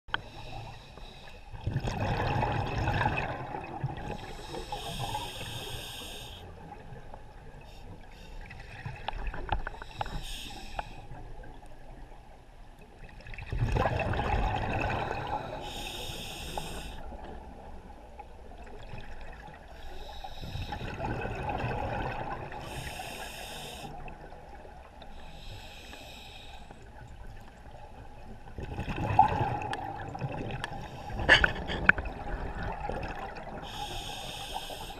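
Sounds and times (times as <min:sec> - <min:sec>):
gush of exhaled bubbles: 0:01.6 - 0:04.3, 0:13.4 - 0:15.6, 0:20.7 - 0:22.7, 0:28.6 - 0:33.6
regulator inhalation hiss: 0:04.2 - 0:06.5, 0:09.8 - 0:11.1, 0:15.4 - 0:17.1, 0:22.6 - 0:24.0, 0:25.2 - 0:26.8, 0:33.7 - 0:34.9.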